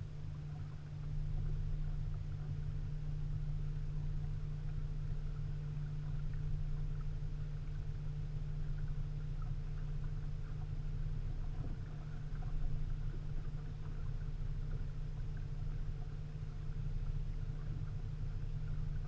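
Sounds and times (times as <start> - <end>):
boat motor humming: 0.0 - 19.0.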